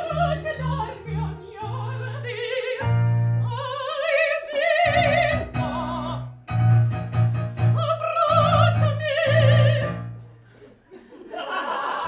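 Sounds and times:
operatic woman singing: 0.0s - 6.3s, 7.6s - 10.1s
piano accompaniment: 0.0s - 10.6s.

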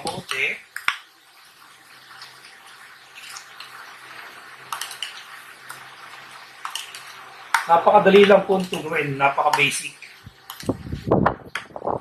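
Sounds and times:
spoon stirring wet sauce: 4.6s - 10.9s.

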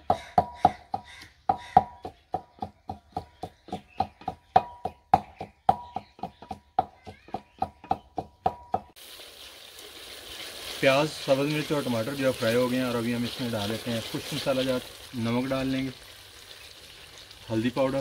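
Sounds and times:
pestle pounding in mortar: 0.0s - 9.0s.

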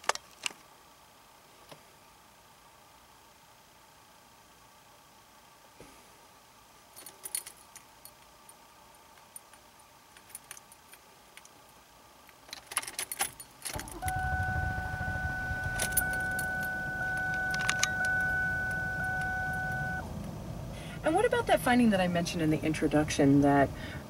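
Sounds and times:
ignition keys jingling and clicking: 7.0s - 8.3s, 10.2s - 11.5s, 12.3s - 20.1s
car engine cranking and idling: 12.6s - 24.0s
steady high tone: 13.7s - 21.6s.

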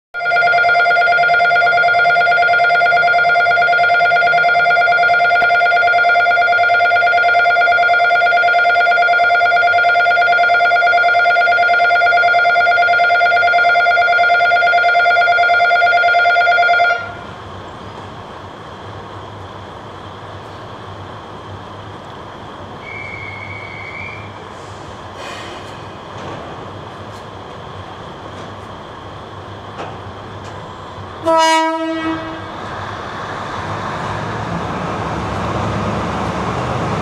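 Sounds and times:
electric station bell ringing: 0.2s - 17.4s
railcar engine idling: 0.2s - 37.0s.

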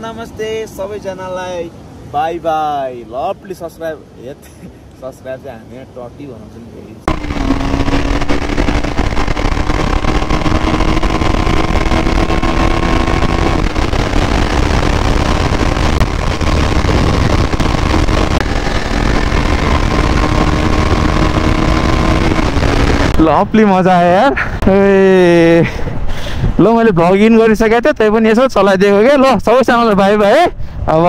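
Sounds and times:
road and wind noise: 0.0s - 31.0s
motorcycle engine running: 7.1s - 23.6s.

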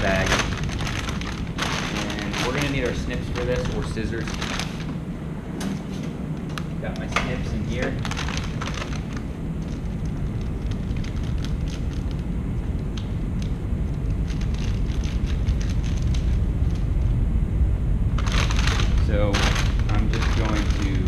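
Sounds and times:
foil bag crinkling: 0.0s - 5.0s, 7.0s - 12.2s, 18.2s - 21.0s
low workshop rumble: 0.0s - 21.0s.

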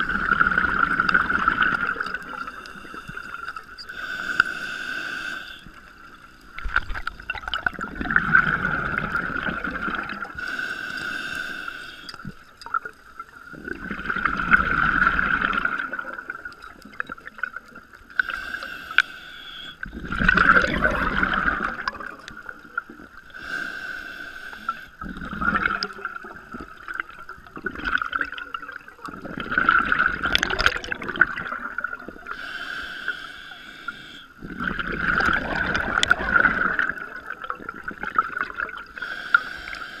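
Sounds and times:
regulator hissing inhale: 2.4s - 5.9s, 10.4s - 12.2s, 18.2s - 19.8s, 23.3s - 25.0s, 32.3s - 34.4s, 39.0s - 40.0s
bubbling exhale: 18.2s - 22.5s, 29.1s - 40.0s.

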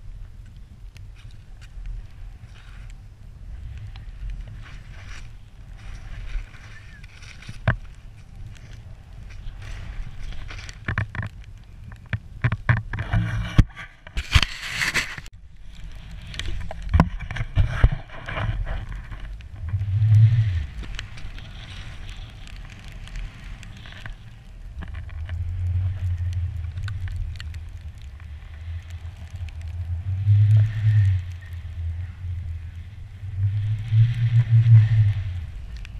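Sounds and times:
wind buffeting microphone: 0.0s - 35.9s
skis hissing through powder snow: 2.2s - 10.8s, 20.2s - 24.4s.

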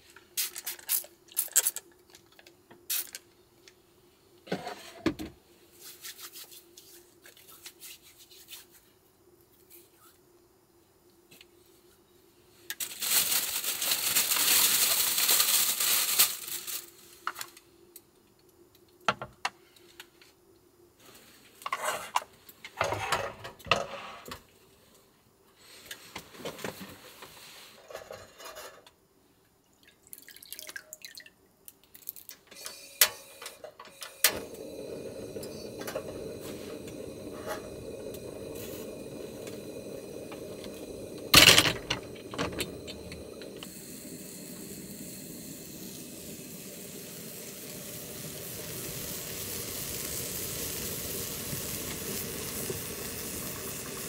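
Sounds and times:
water pouring: 29.7s - 31.4s.

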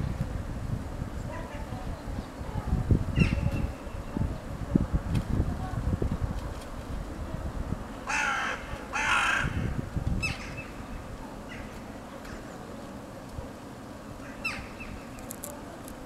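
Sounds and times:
crows cawing: 8.0s - 9.7s.

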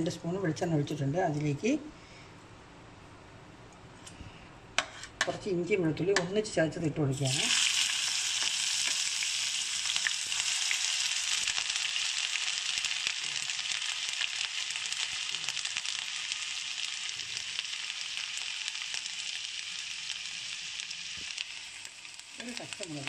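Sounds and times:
food sizzling in oil: 7.1s - 23.0s.

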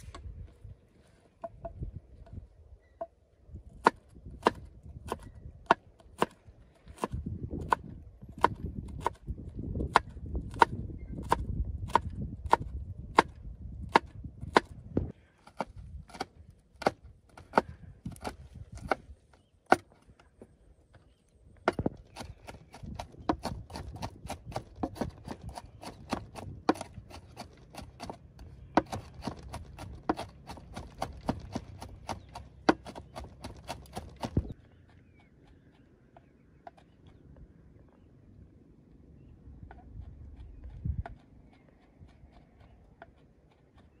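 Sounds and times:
blade chopping wood: 3.7s - 20.1s, 21.6s - 34.6s.

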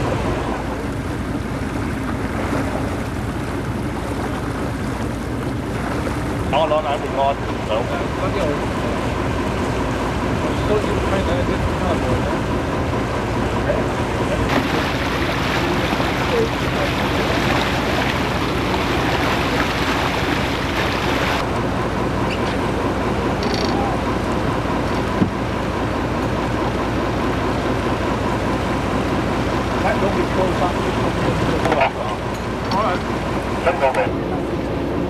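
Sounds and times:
water rushing along a hull: 0.0s - 35.0s.

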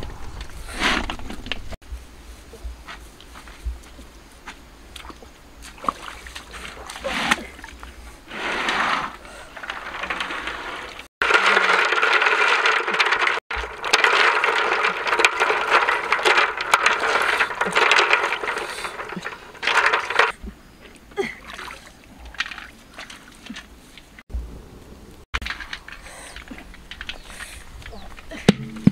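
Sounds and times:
water sloshing and splashing: 4.8s - 8.4s, 9.1s - 24.2s.

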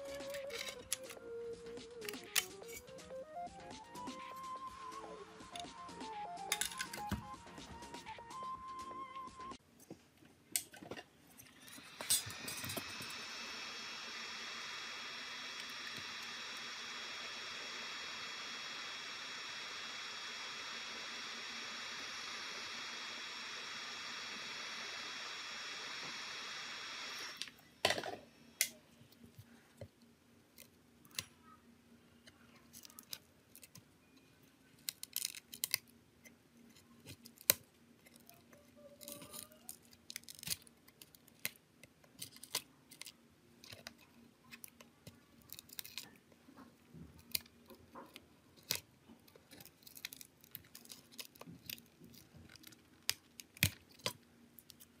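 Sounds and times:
blower hissing and whistling: 0.0s - 9.6s, 11.5s - 27.8s
small tools clicking and tapping: 0.1s - 1.2s, 1.9s - 3.0s.

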